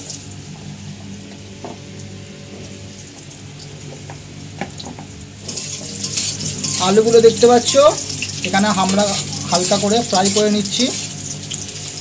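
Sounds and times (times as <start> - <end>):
potatoes frying in hot oil: 4.7 - 12.0.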